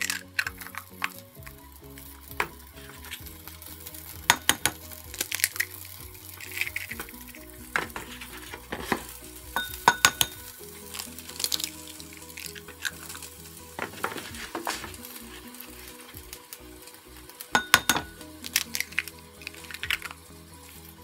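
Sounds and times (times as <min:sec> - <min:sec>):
eggshells cracking on a bowl: 0:00.0 - 0:21.0
vegetables sizzling in a frying pan: 0:00.0 - 0:21.0.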